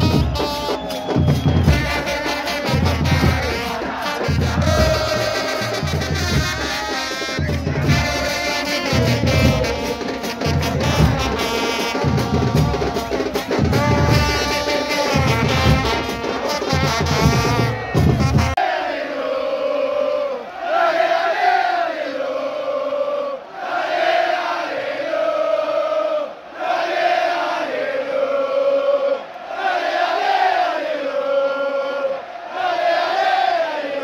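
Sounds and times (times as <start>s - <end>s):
trumpets playing melody: 0.0s - 1.0s, 1.6s - 18.6s
bass drums pounding: 4.3s - 6.8s, 7.4s - 16.1s, 16.7s - 18.6s.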